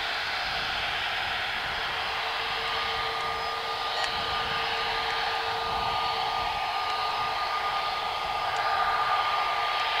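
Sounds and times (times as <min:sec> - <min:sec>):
jet engines running: 0:00.0 - 0:10.0.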